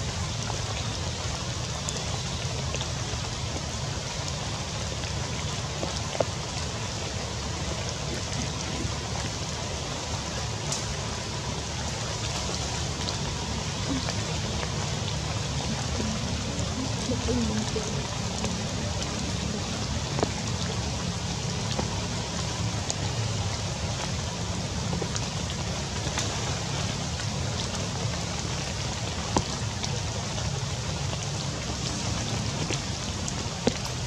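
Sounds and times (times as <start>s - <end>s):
rain falling on foliage: 0.0s - 34.0s
single raindrops striking close: 10.4s - 11.5s.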